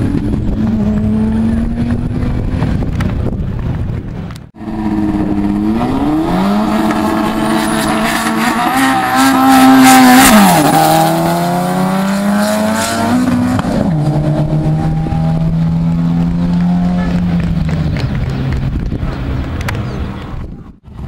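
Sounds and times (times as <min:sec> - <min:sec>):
racing cars accelerating: 0:04.6 - 0:20.2.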